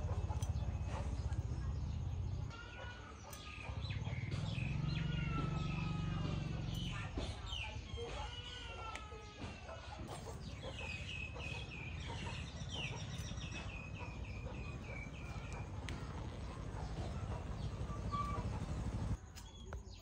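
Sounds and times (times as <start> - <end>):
bird calls: 0.0 - 20.0.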